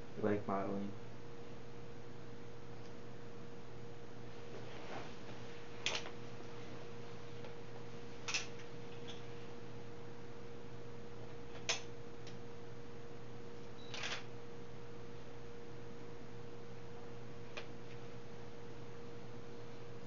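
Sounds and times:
steady hum and hiss: 0.0s - 20.0s.

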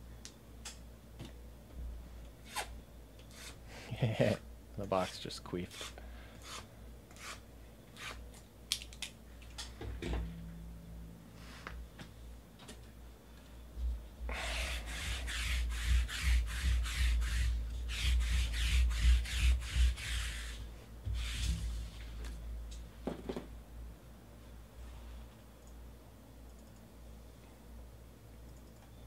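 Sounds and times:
lint roller rasping on desk: 5.7s - 7.4s, 14.6s - 21.6s.

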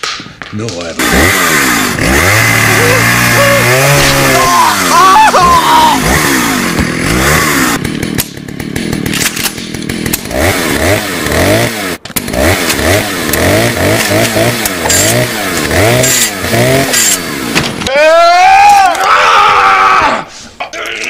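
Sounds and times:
chainsaw engine revving: 1.0s - 17.9s.

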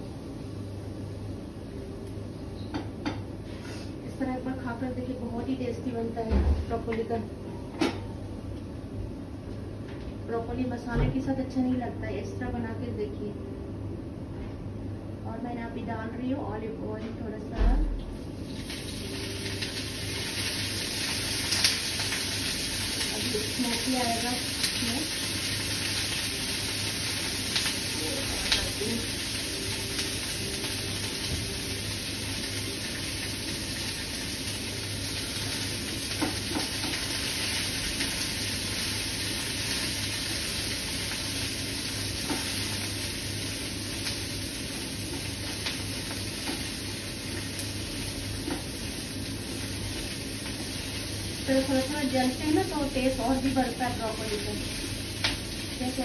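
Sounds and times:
broccoli sizzling in frying pan: 18.1s - 56.0s.

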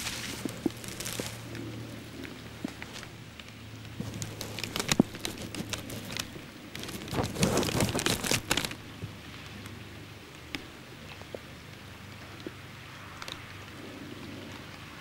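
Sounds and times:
rain tapping on plastic bag: 0.0s - 11.5s.

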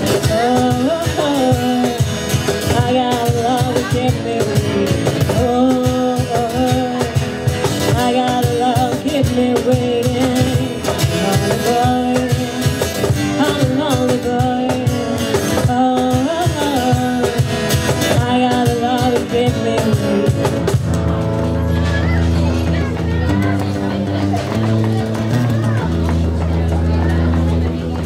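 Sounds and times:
woman singing into microphone: 0.0s - 20.8s
cajon beaten in rhythm: 0.0s - 28.0s
strummed acoustic guitar: 0.0s - 28.0s.

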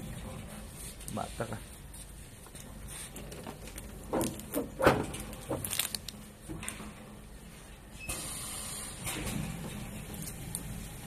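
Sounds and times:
machine knocks and clatters: 3.2s - 5.7s, 9.0s - 10.2s.

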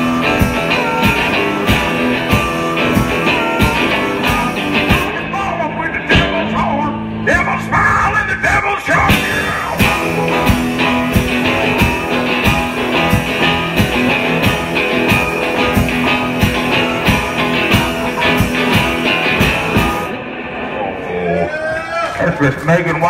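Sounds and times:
harmonica: 0.0s - 5.1s
drum kit beating: 0.0s - 6.8s, 8.9s - 20.4s.

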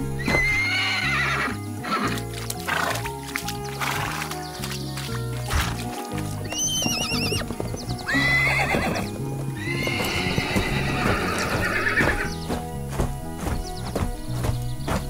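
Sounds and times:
background music: 0.0s - 15.0s
hooves clip-clopping: 0.0s - 15.0s
horse whinnying: 0.1s - 3.1s, 5.5s - 12.4s.

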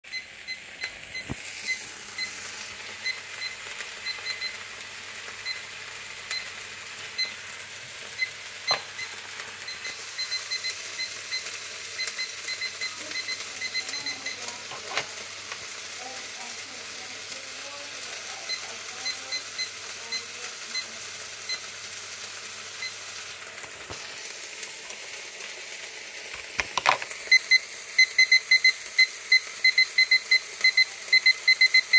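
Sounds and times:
thermometer beeping: 0.1s - 4.7s, 5.3s - 7.5s, 8.1s - 15.1s, 18.2s - 20.9s, 21.5s - 21.7s, 22.8s - 23.0s, 26.8s - 31.9s
food sizzling in a pan: 0.1s - 31.9s.

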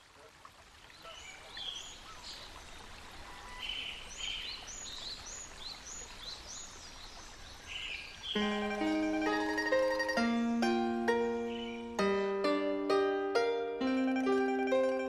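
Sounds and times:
faint outdoor hiss: 0.0s - 15.0s
small birds chirping: 0.8s - 12.2s
plucked-string music: 8.4s - 15.0s.

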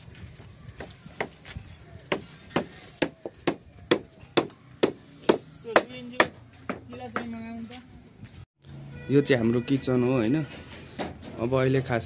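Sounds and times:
hammer striking wooden planks: 2.1s - 7.3s.

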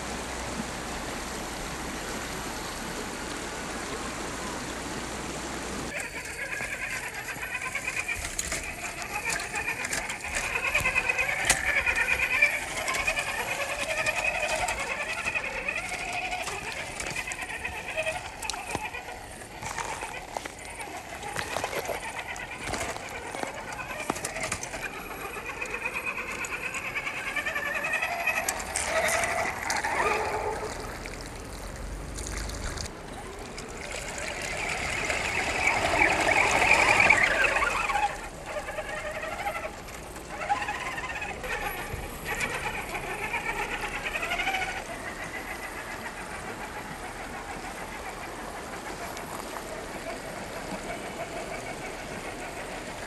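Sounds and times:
electric motor whining: 5.9s - 30.6s, 33.1s - 46.1s
splashing through water: 28.2s - 41.3s.

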